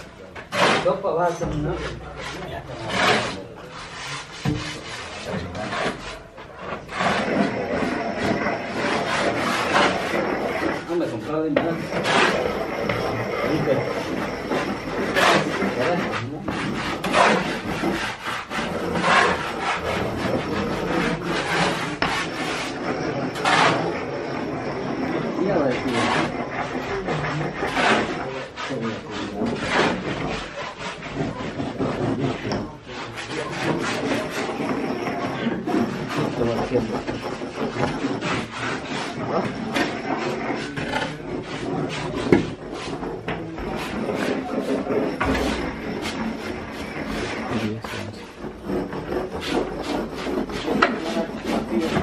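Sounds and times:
rough scraping strokes: 0.0 - 52.0
knocks and clatter: 40.6 - 47.7.

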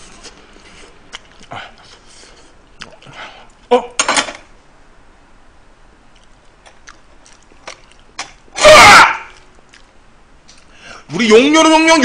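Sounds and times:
man shouting in excitement: 8.6 - 9.3, 11.2 - 12.0.

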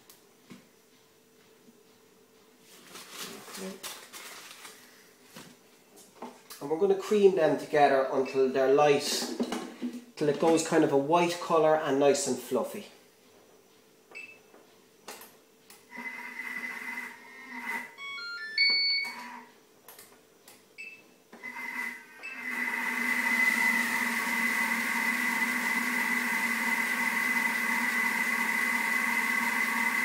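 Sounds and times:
food processor motor whining: 15.9 - 17.9, 21.4 - 30.0
short beeps: 18.0 - 19.3.

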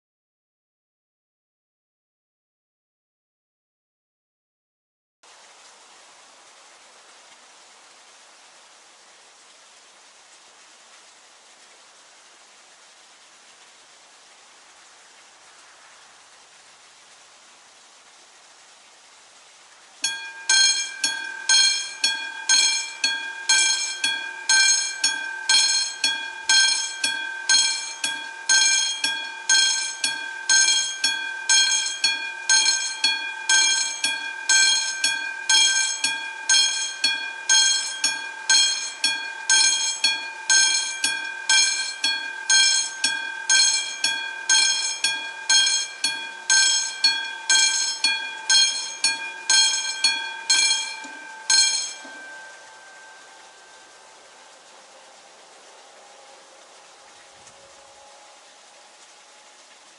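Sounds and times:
level crossing bell ringing: 20.0 - 54.0.

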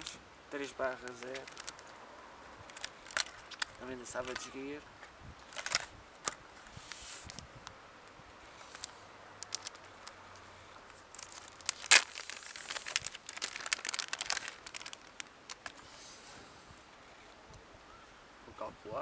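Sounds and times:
plastic packet crinkling: 0.7 - 1.9, 2.6 - 4.6, 5.5 - 6.4, 8.7 - 10.2, 10.9 - 15.8
sharp plastic crack: 1.0 - 1.9, 11.1 - 15.8.

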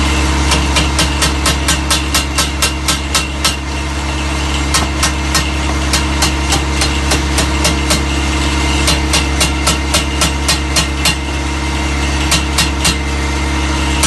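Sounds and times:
engine hum: 0.0 - 14.0
hammer tapping on steel tube: 0.5 - 3.6.

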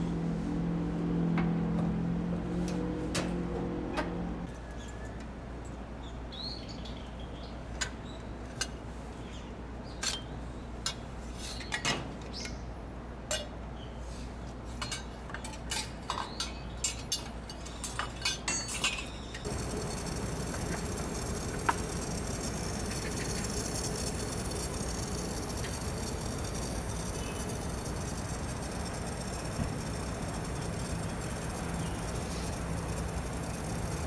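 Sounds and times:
whirring with high whine: 19.4 - 34.0.

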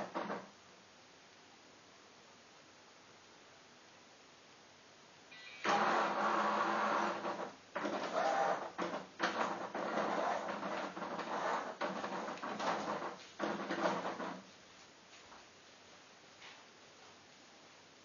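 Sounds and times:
chess computer motor whirring: 5.7 - 14.0.

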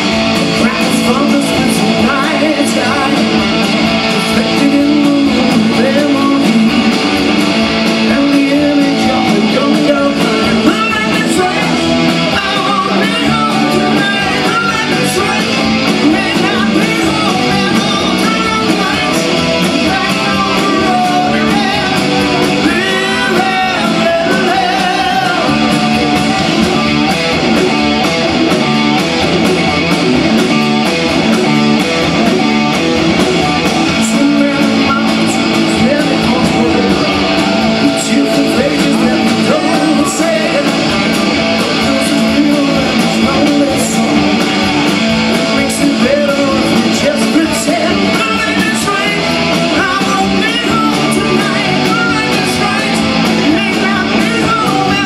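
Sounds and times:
man singing: 0.0 - 26.7, 33.1 - 55.0
distorted electric guitars: 0.0 - 55.0
live hard rock band: 0.0 - 55.0.

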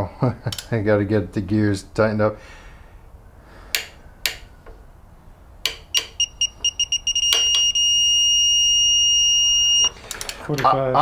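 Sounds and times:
sharp clicks: 3.7 - 4.8
torque wrench beeping: 5.9 - 10.0.

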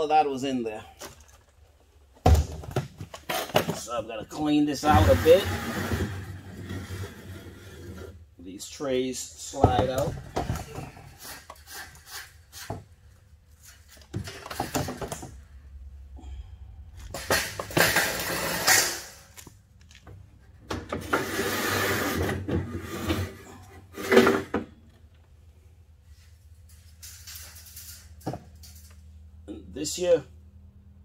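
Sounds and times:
metal trays scraping on runners: 4.8 - 8.1.

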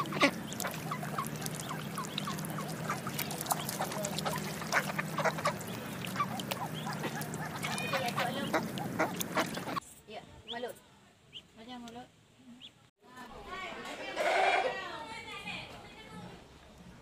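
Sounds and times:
ducklings peeping: 0.0 - 9.8
steady low hum: 0.0 - 9.8.

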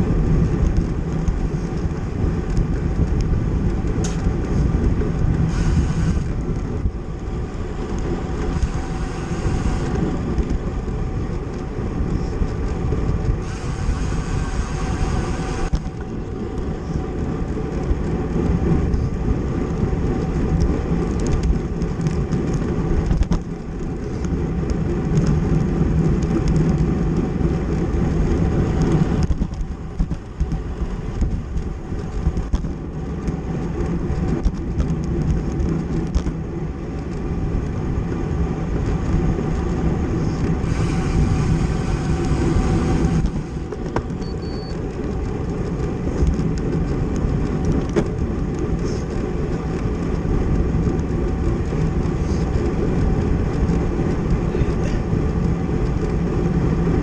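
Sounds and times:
road noise: 0.0 - 57.0
wind rush on microphone: 0.0 - 57.0.

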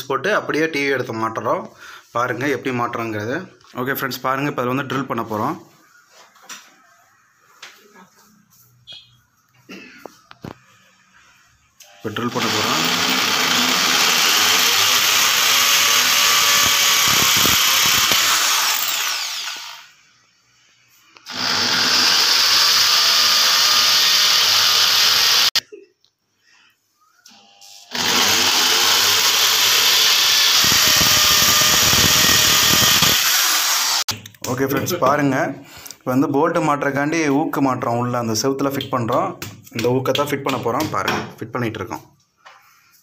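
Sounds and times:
electric drill boring into wall: 11.8 - 19.9, 21.3 - 25.6, 27.3 - 34.1.

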